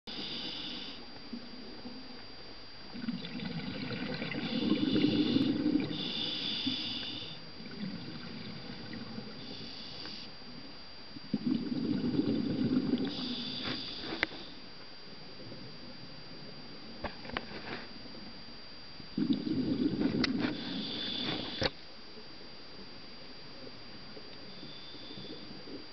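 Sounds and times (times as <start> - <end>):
regulator hissing inhalations: 0.1 - 1.0, 4.4 - 7.4, 9.4 - 10.4, 13.1 - 14.6, 20.4 - 21.8
exhaled bubbles bursting: 2.9 - 6.0, 11.3 - 13.1, 19.2 - 20.4.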